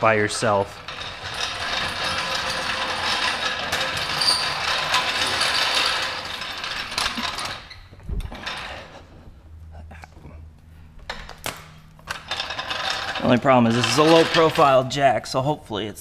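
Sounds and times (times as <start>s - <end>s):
floor jack casters rattling: 0.0s - 9.2s, 12.0s - 15.0s.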